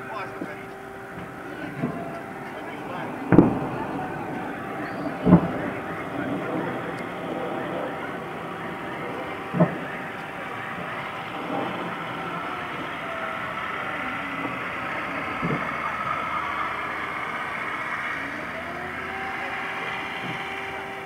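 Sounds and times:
engine-like rumble: 0.0s - 21.0s
distant explosion booms: 1.1s - 17.5s.

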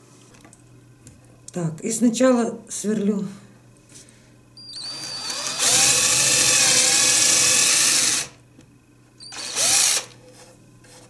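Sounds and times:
electric drill boring into wood: 4.8s - 8.4s, 9.3s - 10.2s.

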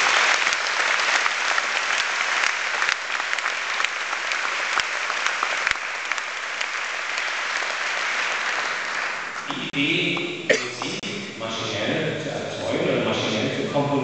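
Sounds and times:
sharp claps close by: 0.0s - 9.6s
audience applauding: 0.0s - 9.8s.

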